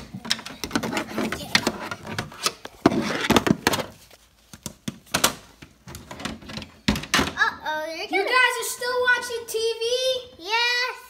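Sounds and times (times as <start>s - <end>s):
plastic toys knocking and clicking: 0.0s - 3.9s.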